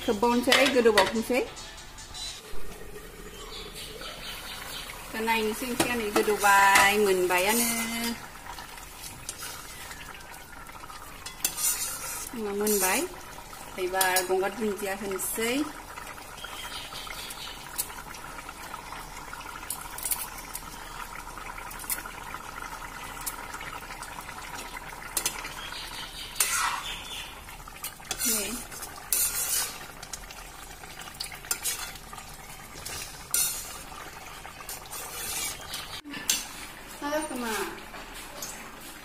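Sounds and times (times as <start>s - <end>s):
curry simmering and bubbling: 2.4s - 39.0s
ladle clinking and scraping pan: 11.2s - 13.0s, 26.4s - 26.8s, 28.1s - 29.9s, 31.4s - 32.0s, 32.8s - 33.9s, 34.6s - 36.6s.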